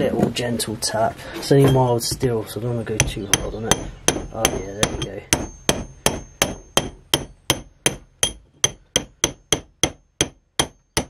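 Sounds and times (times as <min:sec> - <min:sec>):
hammer tapping on steel rod: 0:03.0 - 0:11.0.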